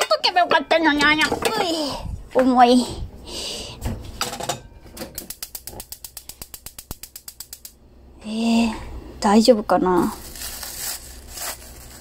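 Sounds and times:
gas stove igniter clicking: 5.1 - 7.8.

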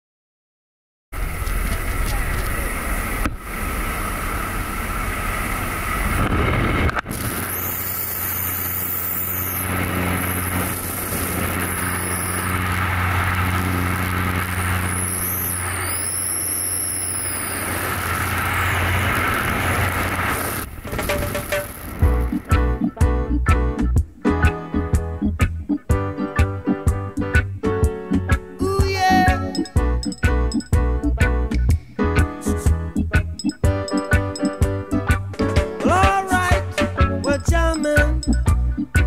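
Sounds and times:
rushing wind: 1.2 - 22.8
light aircraft engine droning: 1.2 - 23.0.

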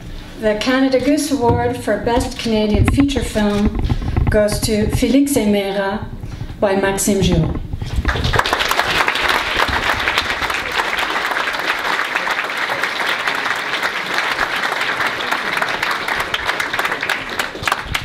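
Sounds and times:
audience applauding: 8.0 - 18.0.

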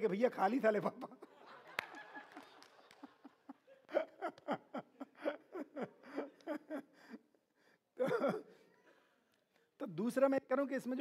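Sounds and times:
people laughing: 0.8 - 7.2.

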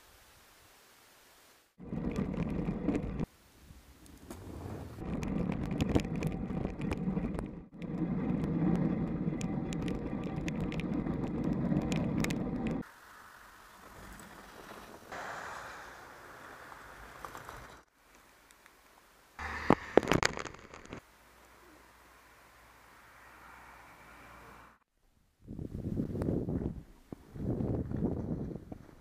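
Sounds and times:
bike tyres rumbling: 1.8 - 12.9, 13.7 - 17.9, 19.4 - 21.0
bike rattling over bumps: 4.1 - 12.8
wind on microphone: 25.4 - 29.0.

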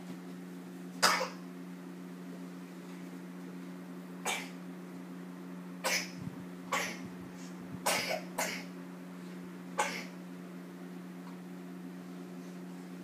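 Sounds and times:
steady low hum: 0.0 - 13.0
person coughing: 1.0 - 1.4, 5.8 - 7.0, 7.9 - 8.7, 9.8 - 10.2.

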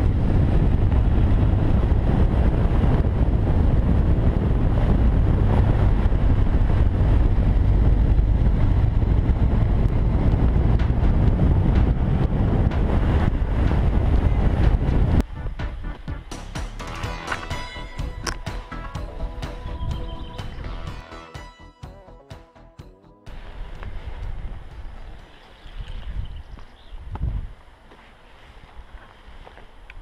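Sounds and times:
wind buffeting microphone: 0.0 - 16.1, 18.0 - 20.8, 23.3 - 27.7
motorcycle engine running: 0.0 - 21.2.

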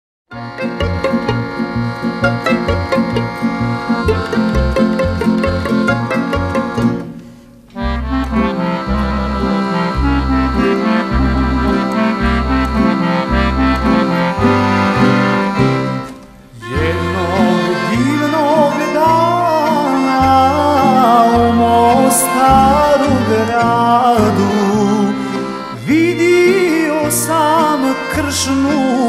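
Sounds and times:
pulsing bass line: 0.3 - 7.2, 7.8 - 18.5, 20.2 - 25.2
wavering melody line: 0.3 - 7.2, 7.8 - 26.8
accordion playing: 0.3 - 29.0.

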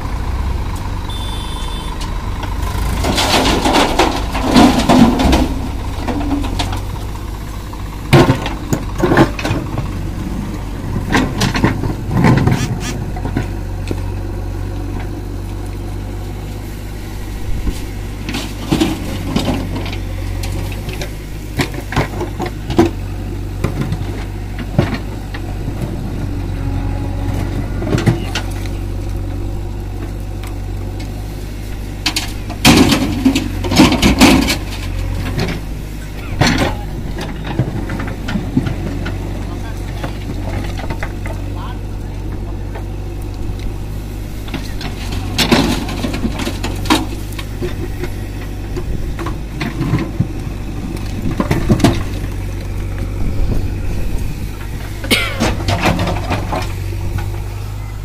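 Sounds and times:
diesel engines running: 0.0 - 58.0
rocks clattering and thudding: 2.8 - 7.4.

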